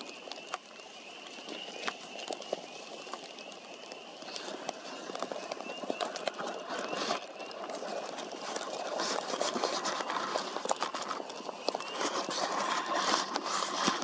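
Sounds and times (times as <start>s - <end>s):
crackling and rustling: 0.0s - 14.0s
osprey whistled chirps: 0.0s - 14.0s.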